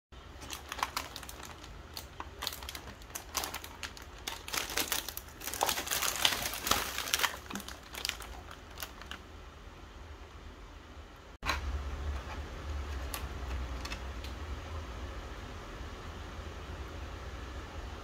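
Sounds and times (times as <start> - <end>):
plastic wrapper crinkling: 0.3 - 9.2.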